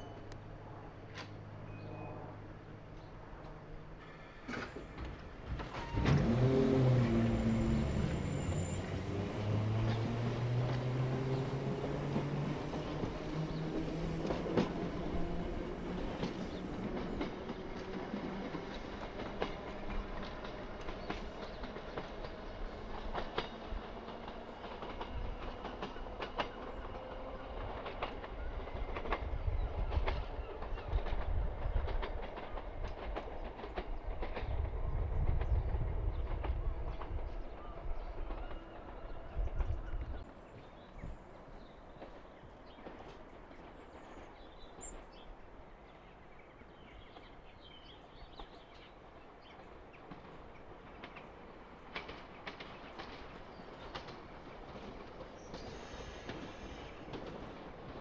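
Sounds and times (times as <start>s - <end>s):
train wheels clicking over rail joints: 4.4s - 37.5s, 46.8s - 58.0s.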